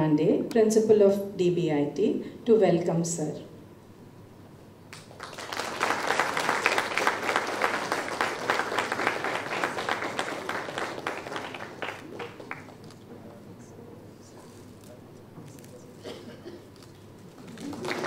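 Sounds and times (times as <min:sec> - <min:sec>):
audience applause: 0:04.9 - 0:13.0, 0:17.4 - 0:18.0.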